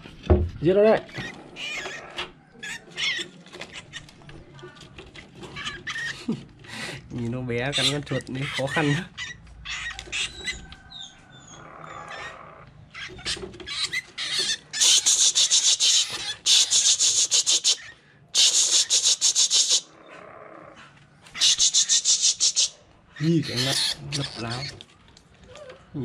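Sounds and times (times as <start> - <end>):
rat scrabbling and squealing: 1.0 - 11.2, 12.9 - 19.9, 21.3 - 25.9
rat squeaking: 1.1 - 4.3, 5.4 - 6.2, 7.7 - 19.9, 21.4 - 24.8.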